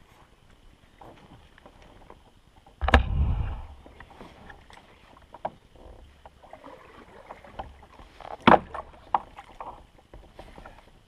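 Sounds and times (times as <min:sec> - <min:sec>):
knocks and clatter on plastic kayak: 0:04.2 - 0:11.0.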